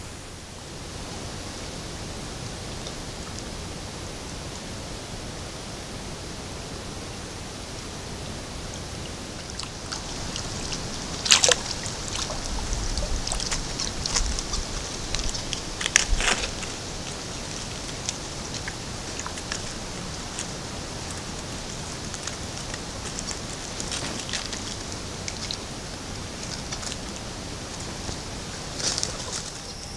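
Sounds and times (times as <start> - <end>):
steady hiss: 0.0 - 29.9
shallow water splashing: 9.4 - 29.7.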